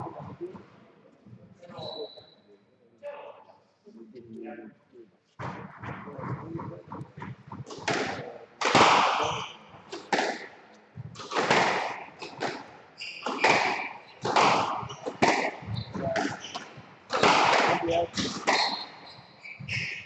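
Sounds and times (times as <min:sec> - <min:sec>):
squash ball struck by rackets: 0:07.3 - 0:19.0
ball smacking off court walls: 0:11.1 - 0:18.8.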